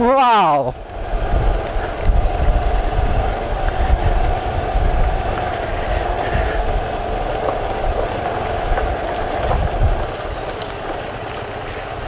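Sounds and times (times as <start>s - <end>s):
road and wind noise: 0.0s - 12.0s
low thumps over bumps: 0.7s - 11.8s.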